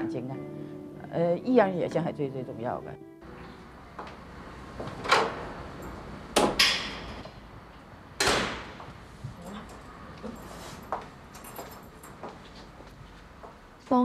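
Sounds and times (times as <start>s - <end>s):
metal security gate clanking: 5.0s - 7.2s.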